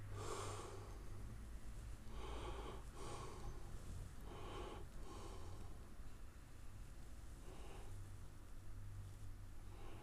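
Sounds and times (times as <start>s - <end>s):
person breathing through nose: 0.0s - 1.1s, 2.0s - 5.9s, 7.4s - 8.1s
low steady hum: 0.0s - 10.0s.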